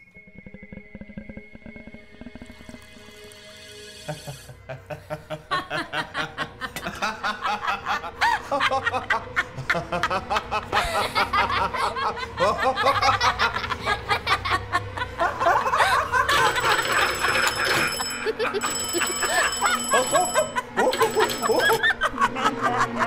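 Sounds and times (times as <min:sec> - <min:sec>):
man and woman laughing: 0:04.2 - 0:23.0
telephone bell ringing: 0:16.2 - 0:22.0.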